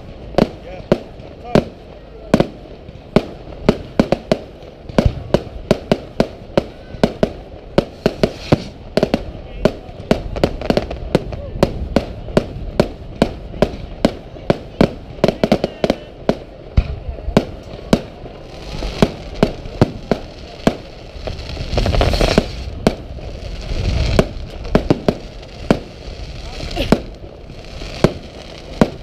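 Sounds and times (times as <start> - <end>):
firework shells bursting: 16.3 - 29.0.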